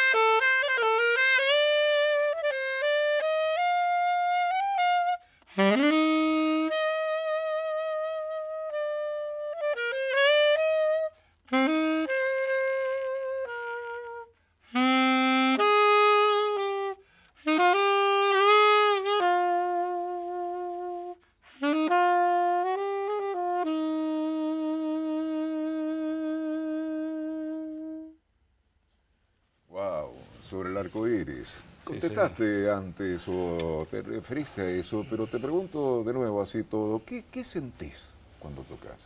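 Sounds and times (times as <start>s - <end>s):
saxophone playing slow melody: 0.0s - 28.2s.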